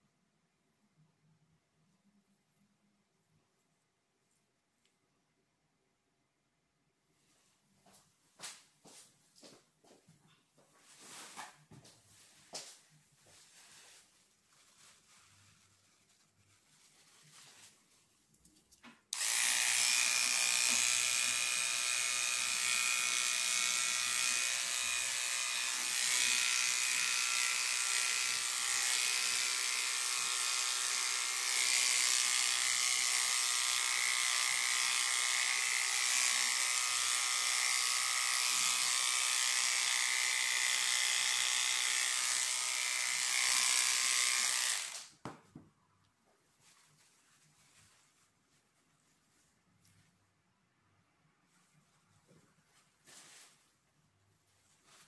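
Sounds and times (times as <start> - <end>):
electric hair clippers running: 19.2 - 45.1.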